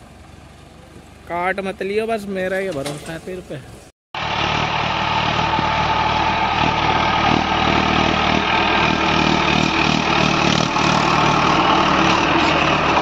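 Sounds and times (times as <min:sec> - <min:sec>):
tractor diesel engine running: 0:04.2 - 0:13.0.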